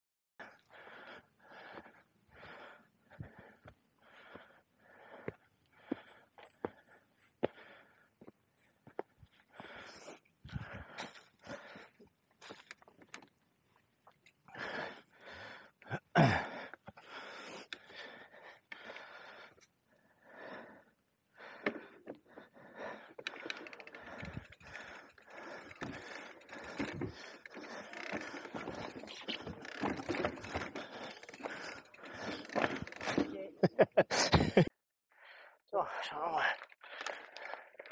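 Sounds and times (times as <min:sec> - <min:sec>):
person breathing hard: 0:00.4 - 0:08.4, 0:09.4 - 0:12.0, 0:14.5 - 0:33.1, 0:36.8 - 0:37.9
bike rattling over rocky trail: 0:23.2 - 0:33.4.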